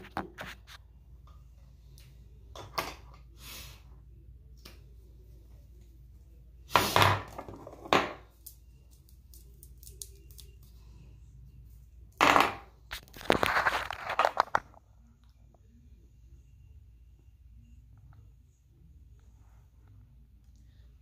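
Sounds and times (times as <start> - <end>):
phone handling rustling and scraping: 12.9 - 14.8.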